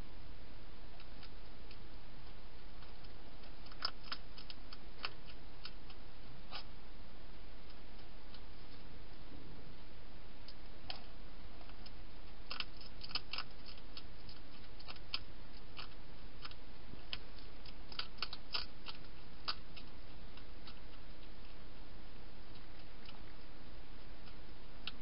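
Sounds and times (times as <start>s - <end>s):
hedgehog crunching dry food: 2.8s - 6.7s, 11.6s - 21.7s.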